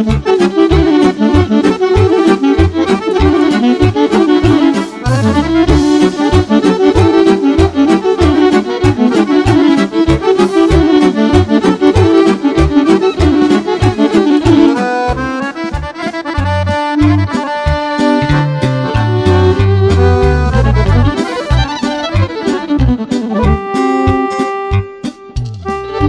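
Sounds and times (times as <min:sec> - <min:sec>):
alto saxophone: 0:00.0 - 0:26.0
button accordion melody: 0:00.0 - 0:26.0
drum and keyboard beat: 0:00.0 - 0:26.0.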